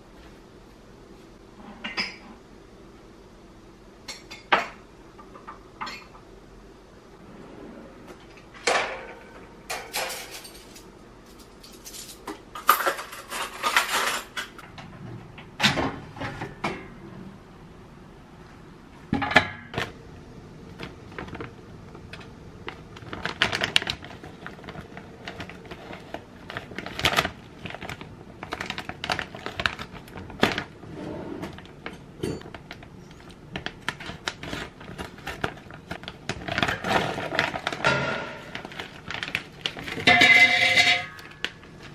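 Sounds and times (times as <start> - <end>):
rustles of objects handled: 20.7 - 41.9.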